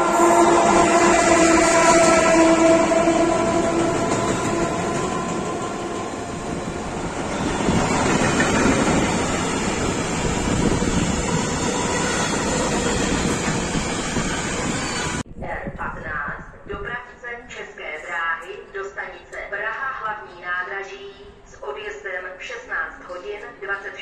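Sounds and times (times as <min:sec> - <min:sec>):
train wheels rumbling and clattering: 0:00.6 - 0:15.2.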